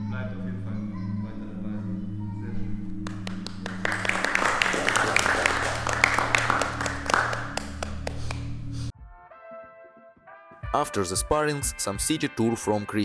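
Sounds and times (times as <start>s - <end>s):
people clapping: 3.0s - 8.6s.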